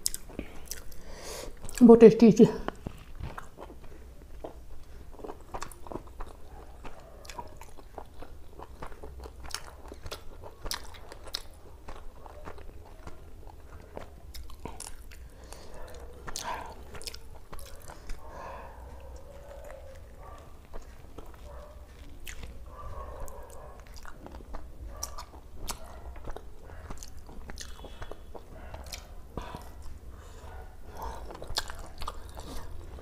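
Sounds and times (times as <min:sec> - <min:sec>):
chewing mouth clicks and smacks: 0:00.0 - 0:01.8, 0:02.7 - 0:33.0.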